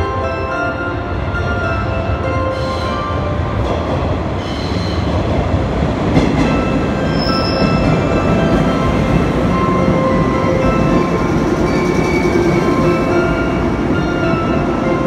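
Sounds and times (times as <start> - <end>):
train wheels rumbling: 1.5 - 15.0
high squeal: 7.0 - 7.8.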